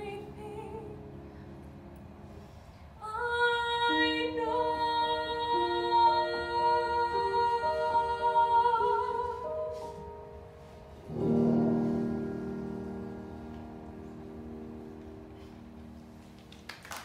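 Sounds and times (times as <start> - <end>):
piano: 0.0 - 17.0
woman singing with vibrato: 3.0 - 9.9.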